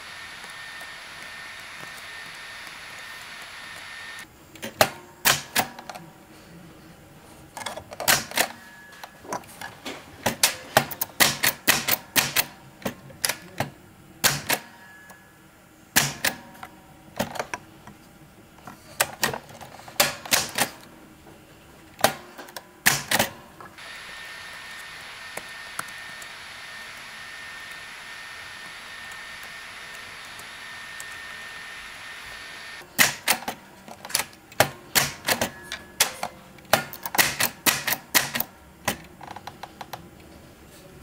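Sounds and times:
manual typewriter typing: 0:19.0 - 0:20.8, 0:33.0 - 0:39.1.

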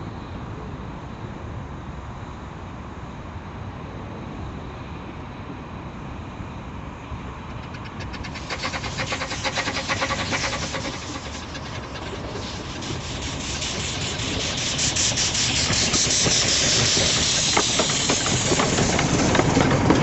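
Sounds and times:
miniature train rumbling: 0:07.0 - 0:20.0
rapid sharp rhythmic strokes: 0:07.6 - 0:19.4.

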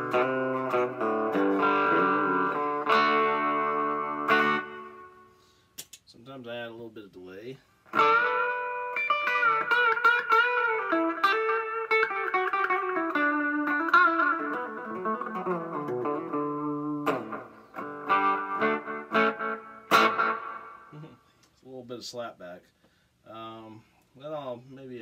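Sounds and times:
clean electric guitar melody: 0:00.0 - 0:05.3, 0:07.9 - 0:21.1
electric guitar chords strummed: 0:00.0 - 0:05.3, 0:07.9 - 0:21.0.

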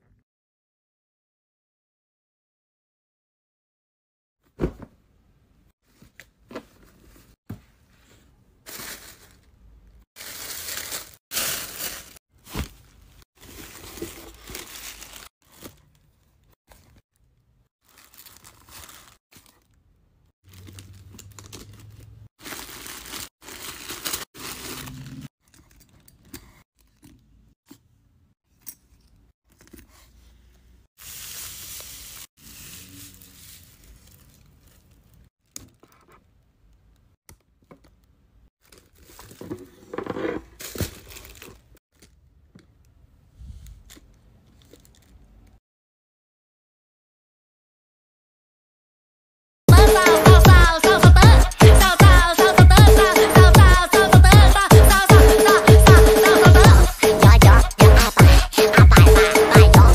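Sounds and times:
paper rustling and tearing: 0:10.2 - 0:17.0, 0:17.8 - 0:19.8, 0:20.4 - 0:26.1, 0:31.0 - 0:35.3, 0:38.6 - 0:42.2.

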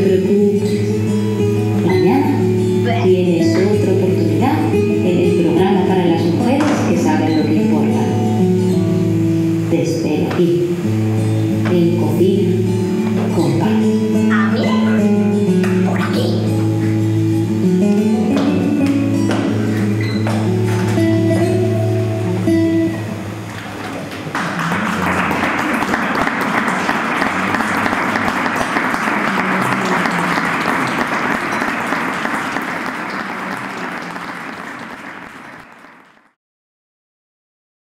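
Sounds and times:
music with plucked notes: 0:00.0 - 0:09.8, 0:10.6 - 0:23.7
audience applause: 0:23.5 - 0:36.4.

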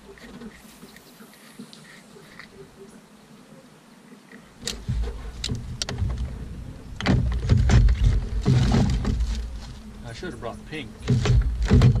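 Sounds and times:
knocks and clicks in metal boat: 0:04.6 - 0:06.4, 0:07.0 - 0:09.5, 0:11.0 - 0:12.0.

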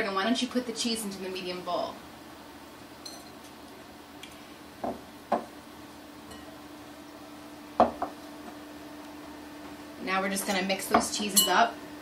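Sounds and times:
faint steady hum: 0:00.0 - 0:12.0
serving dish knocking on bowl: 0:07.8 - 0:08.1.

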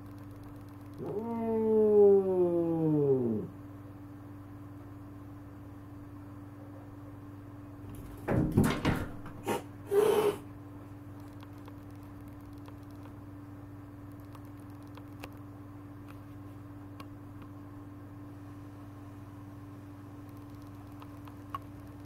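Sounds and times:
low steady hum: 0:00.0 - 0:22.0
thumps on glass: 0:08.0 - 0:09.4
cat hissing: 0:09.4 - 0:10.5.

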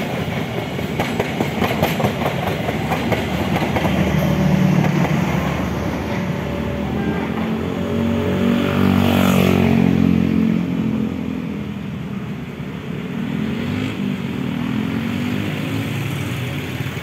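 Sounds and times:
passenger train running: 0:00.0 - 0:17.0
engine passing close: 0:02.1 - 0:11.9.

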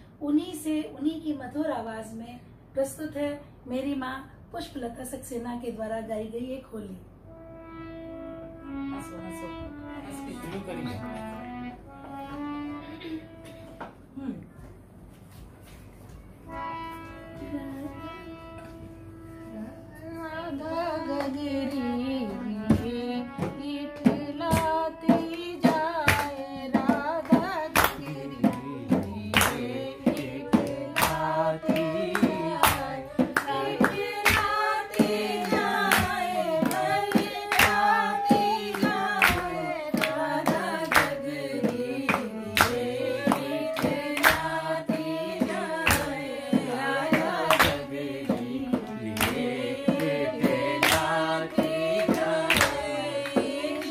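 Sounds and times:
harmonium: 0:07.2 - 0:14.0, 0:15.9 - 0:53.9
women singing folk song: 0:20.0 - 0:53.9
sharp rhythmic beats: 0:22.7 - 0:53.9.

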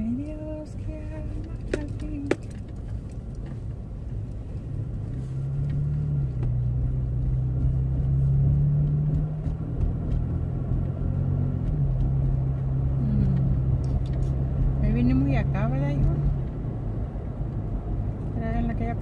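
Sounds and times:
car engine hum: 0:00.0 - 0:19.0
road rumble inside car: 0:00.0 - 0:19.0.

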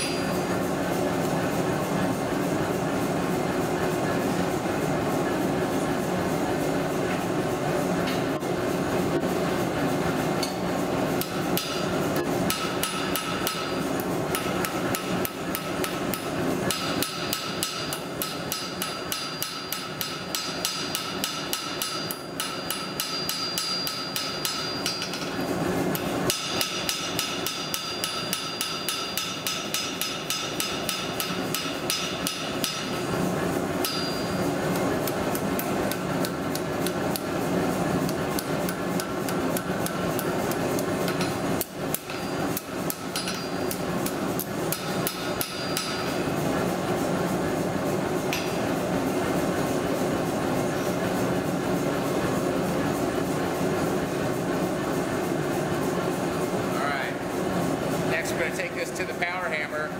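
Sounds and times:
hammer striking steel on an anvil: 0:00.0 - 0:00.4, 0:11.2 - 0:11.9, 0:12.5 - 0:33.0, 0:33.8 - 0:37.3, 0:38.4 - 0:46.3, 0:48.3 - 0:48.6.

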